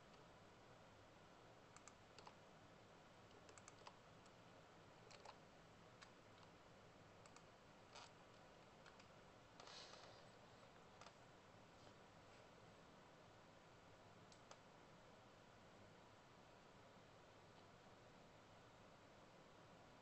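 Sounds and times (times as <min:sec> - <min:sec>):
low room hiss: 0:00.0 - 0:20.0
faint computer clicks: 0:01.7 - 0:02.4, 0:03.3 - 0:04.4, 0:05.0 - 0:05.4, 0:07.2 - 0:10.1, 0:14.3 - 0:14.7.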